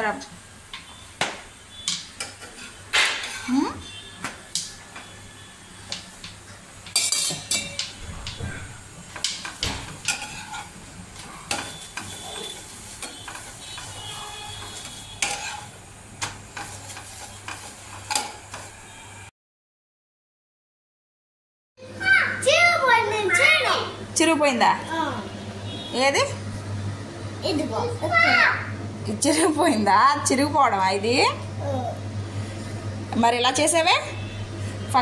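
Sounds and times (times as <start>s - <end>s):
light sizzle: 0.0s - 19.3s
utensils knocking and clinking: 5.9s - 8.4s.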